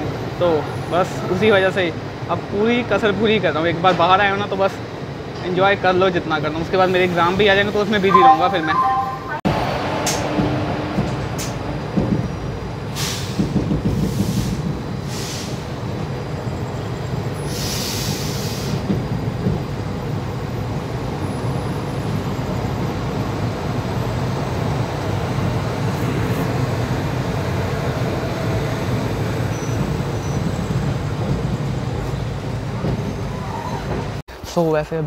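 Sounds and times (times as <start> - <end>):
train wheels rumbling on track: 0.0 - 8.0, 9.5 - 34.2.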